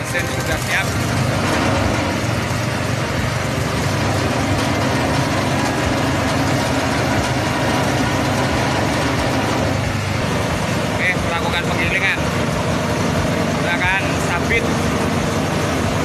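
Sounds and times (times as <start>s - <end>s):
forage chopper running: 0.0s - 16.0s.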